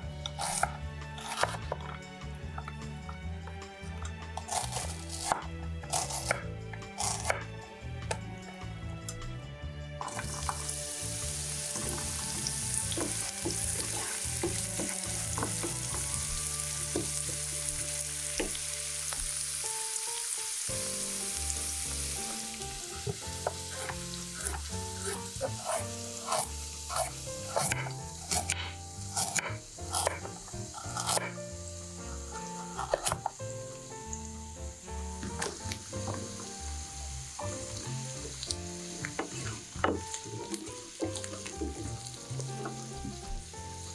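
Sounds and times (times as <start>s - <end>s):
onion and garlic sizzling in oil: 0.0s - 8.6s, 10.0s - 43.9s
soft background music: 0.0s - 43.9s
knife chopping on wooden board: 0.2s - 2.0s, 4.4s - 8.2s, 11.7s - 18.6s, 23.0s - 31.4s, 32.7s - 33.4s
wooden spatula stirring in pan: 10.0s - 19.4s, 37.4s - 43.9s.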